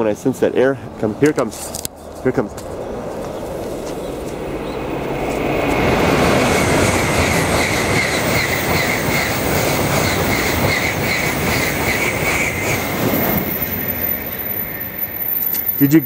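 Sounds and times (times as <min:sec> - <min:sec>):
high-speed train passing: 0:00.0 - 0:16.0.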